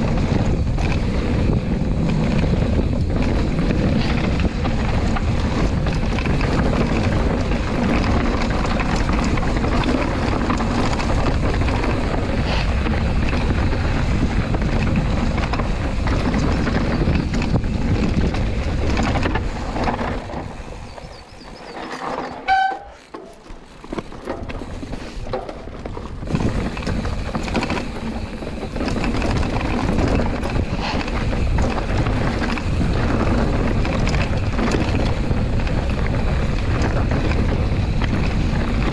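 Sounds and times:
wind buffeting microphone: 0:00.0 - 0:22.6, 0:23.3 - 0:38.9
bike rattling: 0:00.0 - 0:38.9
bike tyre rumble: 0:00.0 - 0:38.9
short squeak: 0:20.9 - 0:23.4.

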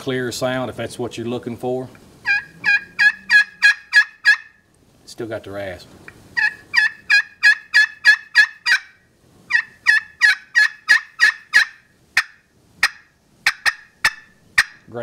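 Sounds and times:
turkey call hen yelps: 0:02.2 - 0:04.6, 0:06.4 - 0:14.9
turkey call sharp cutts: 0:02.2 - 0:04.6, 0:06.3 - 0:14.9.

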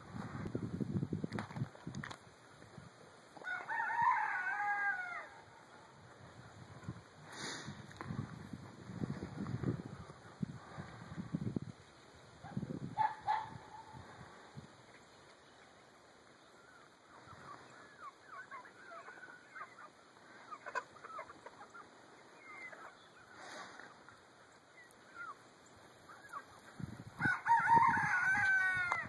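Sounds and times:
chickens clucking: 0:05.4 - 0:27.2.

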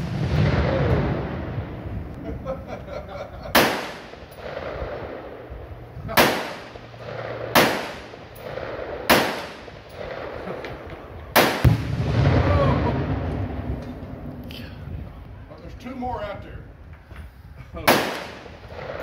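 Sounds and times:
explosive target boom: 0:00.0 - 0:02.1, 0:11.4 - 0:15.0
rifle shots with echo: 0:00.0 - 0:02.1, 0:03.5 - 0:14.2, 0:17.8 - 0:19.0.

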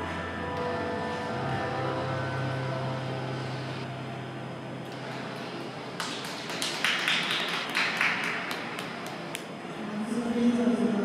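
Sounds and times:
ice rink low hum: 0:00.0 - 0:06.7.

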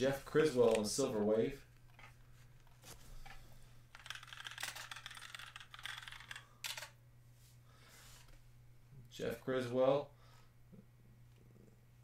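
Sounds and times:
typing on computer keyboard: 0:04.0 - 0:06.9.

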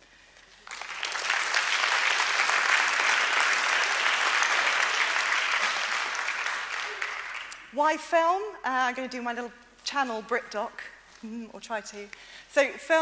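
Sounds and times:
audience applauding: 0:00.3 - 0:07.7.

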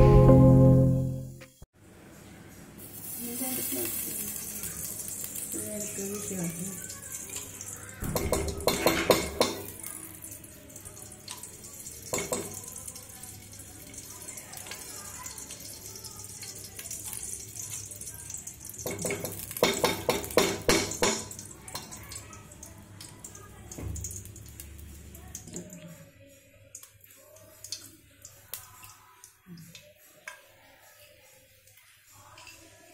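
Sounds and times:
ghee sizzling: 0:02.4 - 0:25.8.

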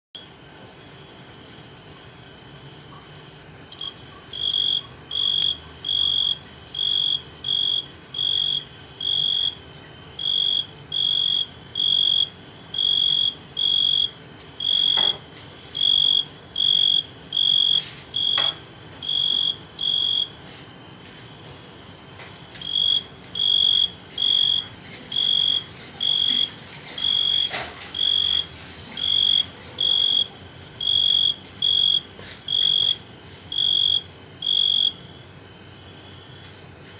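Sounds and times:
tree cricket trilling: 0:03.7 - 0:36.6.

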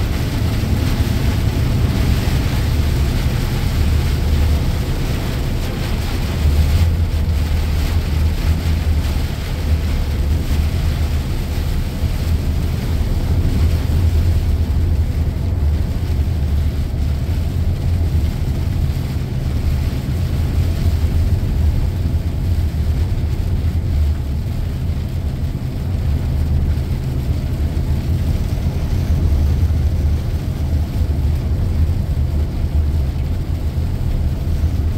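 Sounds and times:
truck diesel engine drone: 0:00.0 - 0:34.9
tyres on wet road: 0:00.0 - 0:34.9.

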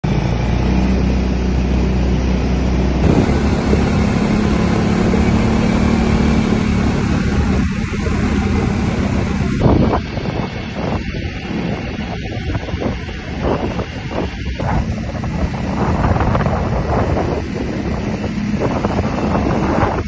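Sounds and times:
quad bike engine: 0:00.0 - 0:10.0
rushing wind: 0:00.0 - 0:20.0.

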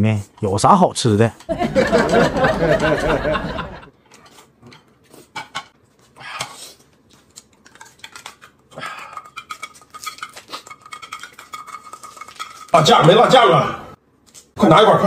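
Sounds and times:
chopsticks scraping jar: 0:06.4 - 0:13.3.

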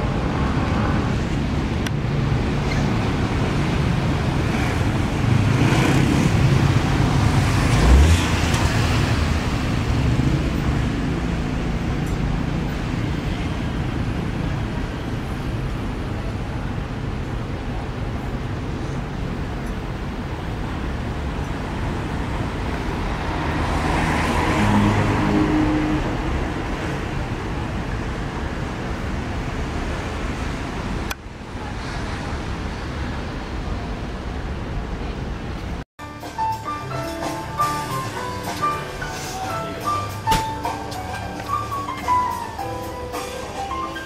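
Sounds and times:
road traffic: 0:00.0 - 0:44.0
vehicle passing: 0:03.1 - 0:11.9, 0:21.7 - 0:27.5
background music with percussion: 0:36.0 - 0:44.0.

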